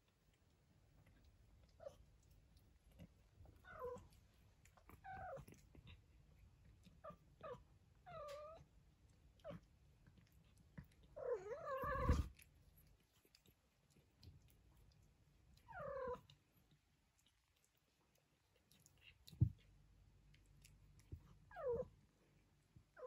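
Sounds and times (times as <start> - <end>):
kittens mewing: 11.3 - 12.3.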